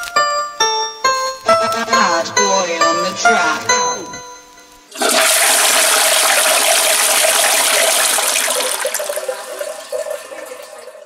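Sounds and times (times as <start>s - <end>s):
toilet flushing: 4.9s - 11.0s.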